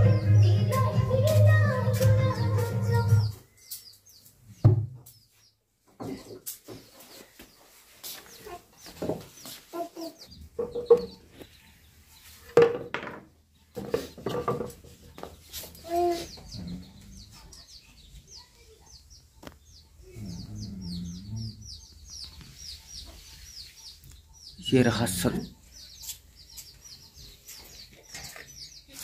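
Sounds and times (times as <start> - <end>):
small birds chirping rapidly: 0.0 - 12.5, 13.3 - 29.0
chickens clucking: 0.0 - 12.7, 13.3 - 29.0.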